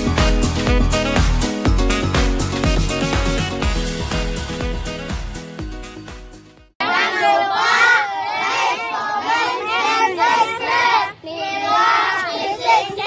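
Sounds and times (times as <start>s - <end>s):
electronic music: 0.0s - 6.7s
boys shouting in unison: 6.8s - 13.0s.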